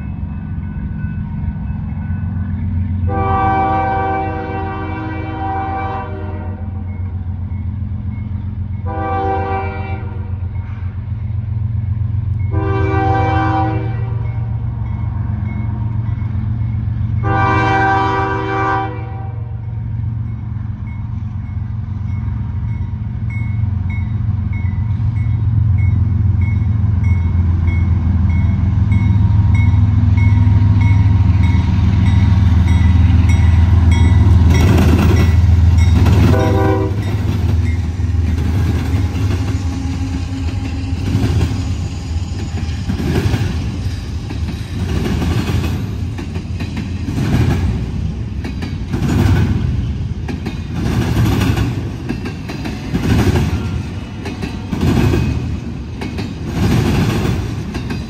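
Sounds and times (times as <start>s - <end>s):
diesel locomotive rumble: 0.0s - 58.0s
train air horn blasts: 3.1s - 6.8s, 8.8s - 10.4s, 12.5s - 14.2s, 17.2s - 19.6s, 36.2s - 37.3s.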